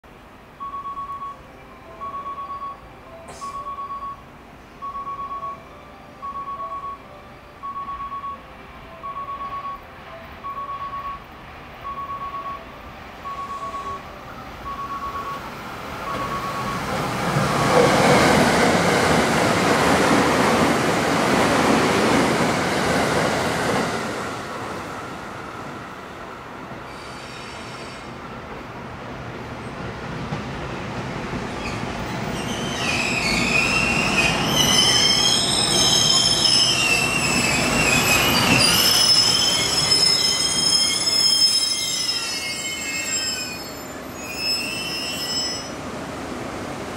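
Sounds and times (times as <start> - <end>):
electronic warning beep: 0.6 - 4.2, 4.8 - 8.4, 9.0 - 9.8, 10.4 - 16.9
train wheels rushing on rail: 14.8 - 46.9
locomotive wheels squealing: 26.9 - 28.1, 31.6 - 45.8.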